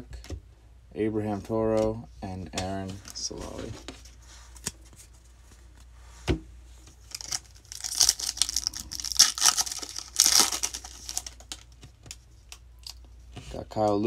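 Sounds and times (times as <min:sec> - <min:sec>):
foil wrapper tearing and crinkling: 0:07.0 - 0:11.7.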